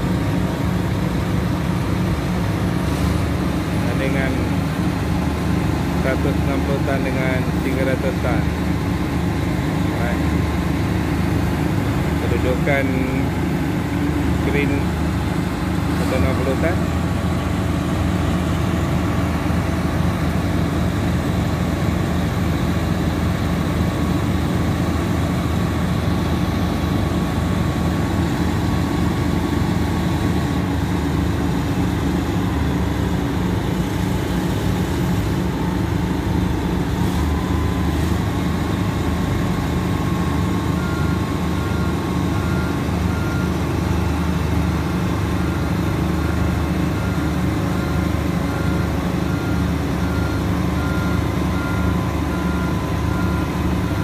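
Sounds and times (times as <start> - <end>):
heavy diesel engines running: 0.0 - 54.0
repeating beep alarm: 45.4 - 54.0.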